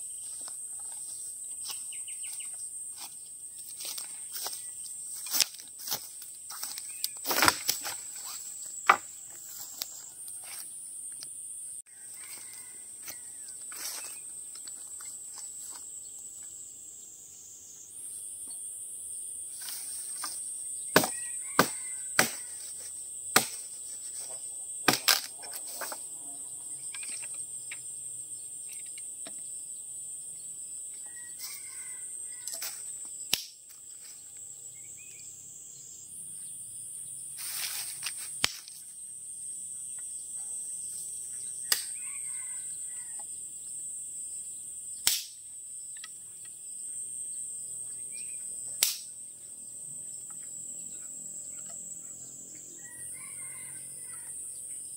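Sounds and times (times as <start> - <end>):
high-pitched insect chorus: 0.0 - 54.9
sharp knocks or cracks: 23.4 - 23.6, 24.9 - 25.4.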